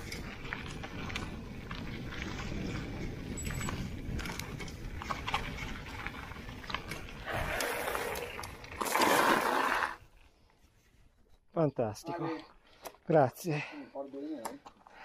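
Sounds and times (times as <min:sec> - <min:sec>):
rattling and clicking bike parts: 0:00.0 - 0:09.4
tyres rumbling on gravel: 0:00.0 - 0:10.0.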